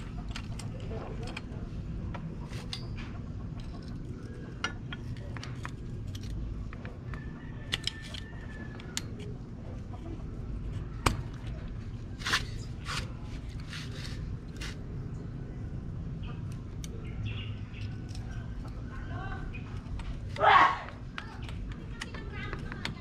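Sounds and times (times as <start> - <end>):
low background rumble: 0.0 - 23.0
metal clicks and taps: 4.6 - 9.3.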